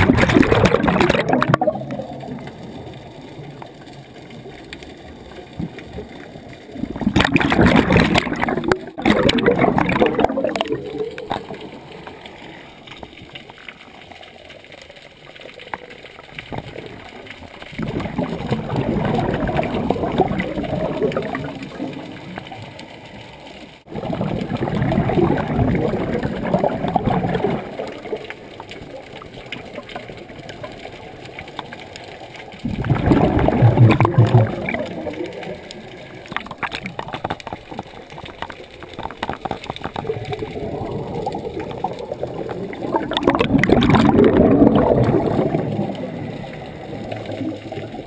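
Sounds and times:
diver exhaling bubbles: 0.0s - 2.9s, 6.7s - 12.7s, 17.7s - 22.7s, 23.9s - 28.2s, 32.6s - 38.4s, 39.0s - 48.0s.

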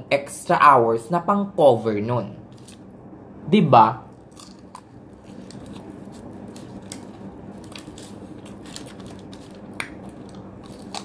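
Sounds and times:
steady low hum: 0.0s - 11.0s
person chewing crisp food: 4.1s - 11.0s.

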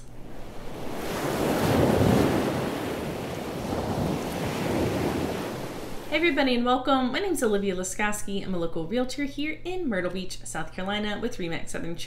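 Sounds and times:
ocean surf washing in: 0.0s - 6.2s.

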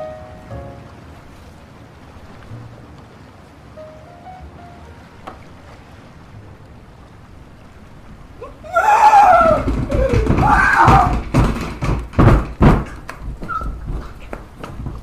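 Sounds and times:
man yelling high-pitched: 8.4s - 11.2s
hard knocks or thumps: 9.1s - 15.0s.

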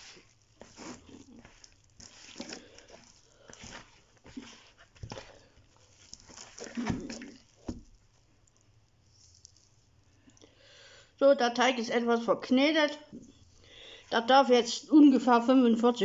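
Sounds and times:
dough squishing and slapping: 0.0s - 10.3s.

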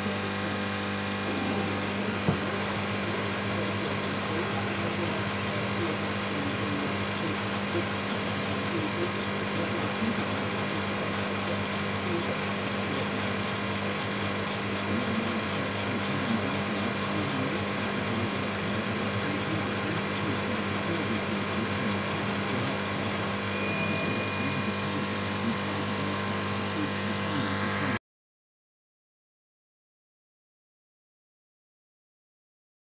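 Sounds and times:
laser engraver machine hum: 0.0s - 28.0s
laser head moving on gantry: 1.2s - 24.8s.

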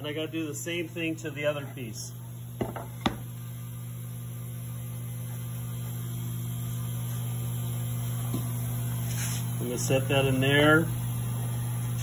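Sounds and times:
vacuum pump humming: 0.0s - 12.0s
board knocking on pad: 2.6s - 3.2s.

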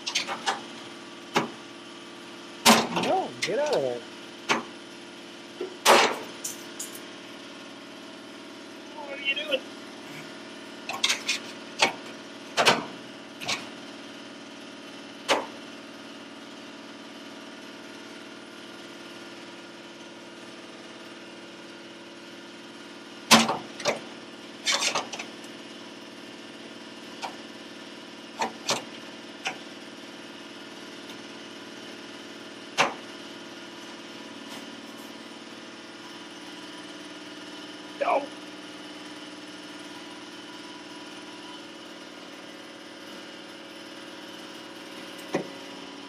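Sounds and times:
tools clicking and clanking on metal: 0.0s - 0.6s, 10.9s - 12.0s, 24.7s - 25.3s
machine hum: 2.6s - 4.4s.

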